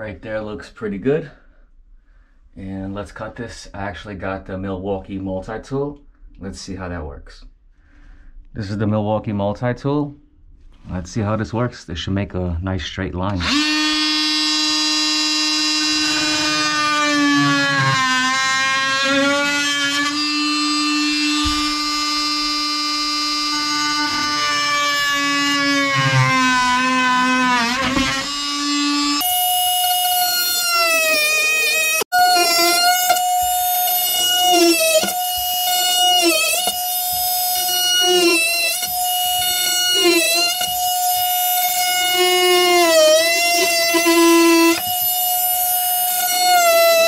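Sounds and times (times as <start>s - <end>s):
oscillating multi-tool buzzing: 13.4s - 47.0s.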